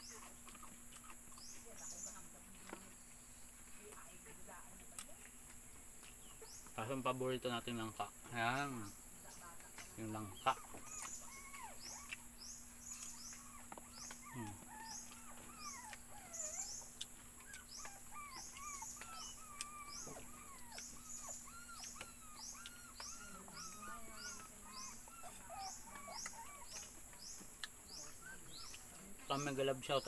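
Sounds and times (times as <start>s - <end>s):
high bird chirp: 8.4s - 30.0s.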